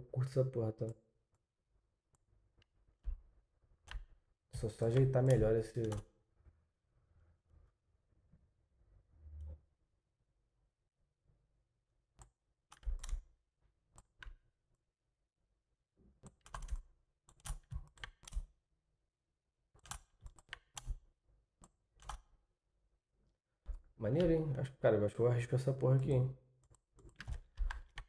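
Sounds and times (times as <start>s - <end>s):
computer keyboard clicking: 4.9s - 6.0s, 12.7s - 13.2s, 16.2s - 18.5s, 19.8s - 21.0s, 27.0s - 28.0s.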